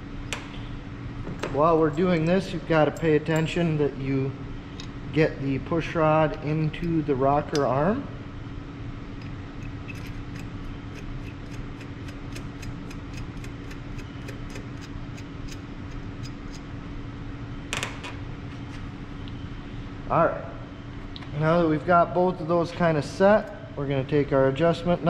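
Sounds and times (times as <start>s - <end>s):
steady shop hum: 0.0s - 25.0s.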